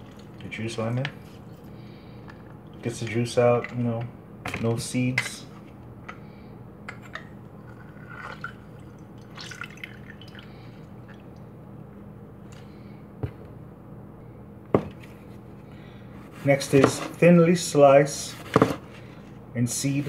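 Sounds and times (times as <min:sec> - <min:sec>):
lemon juice dripping and squishing: 0:07.7 - 0:11.5.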